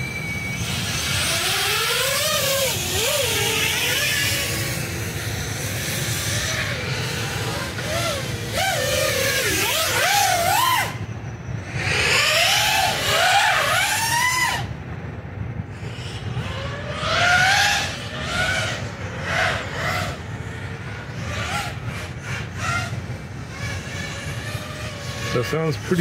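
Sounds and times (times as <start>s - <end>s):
quadcopter motors whining: 0.0s - 26.0s.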